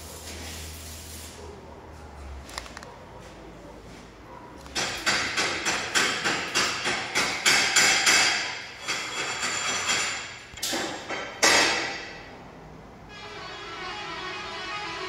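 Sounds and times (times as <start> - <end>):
hammer striking metal: 4.8 - 12.2.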